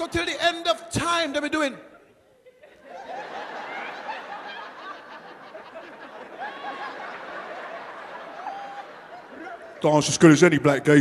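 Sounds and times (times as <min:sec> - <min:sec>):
audience laughing: 0:02.3 - 0:10.2.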